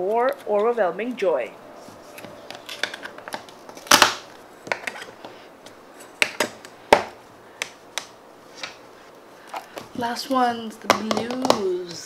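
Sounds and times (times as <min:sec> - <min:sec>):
plastic tubs clicking and tapping: 0:06.2 - 0:08.8, 0:10.8 - 0:12.0.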